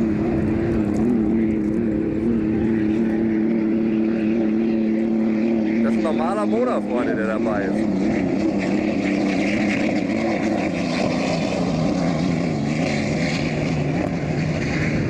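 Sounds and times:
racing boat engines droning: 0.0 - 15.0.

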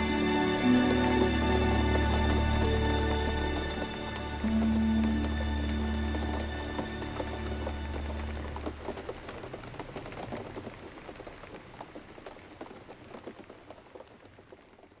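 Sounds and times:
low music chord: 0.0 - 8.6
rain falling: 0.0 - 15.0.

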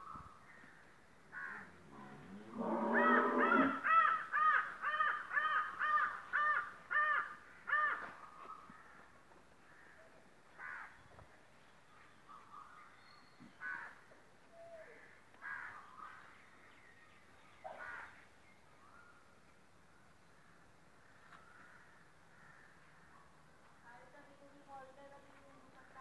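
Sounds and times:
animal calling: 2.6 - 7.2.

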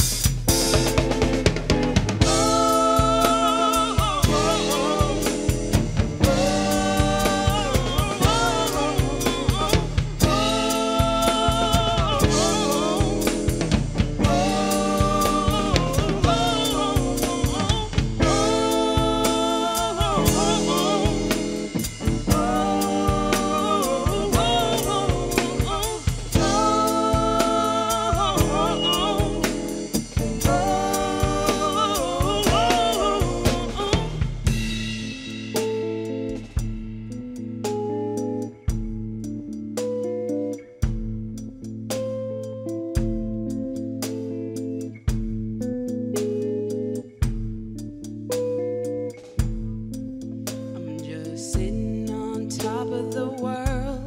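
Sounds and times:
drum kit: 0.0 - 42.3, 43.0 - 50.8
electric guitar: 0.0 - 54.0
woman singing: 2.2 - 34.5, 50.8 - 54.0.

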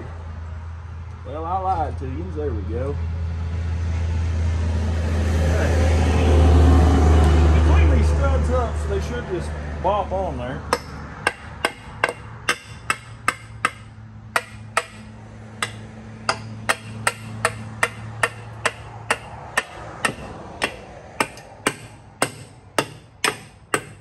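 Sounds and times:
hammer tapping metal: 10.7 - 24.0.

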